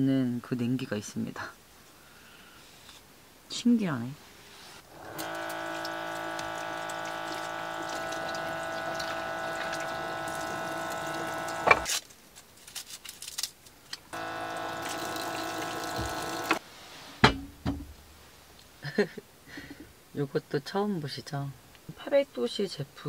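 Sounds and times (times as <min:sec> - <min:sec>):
water pump whining: 0:04.9 - 0:11.9, 0:14.1 - 0:16.6
pump switch click: 0:05.0 - 0:11.9
tap water running over vegetables: 0:05.0 - 0:11.9, 0:14.2 - 0:16.6.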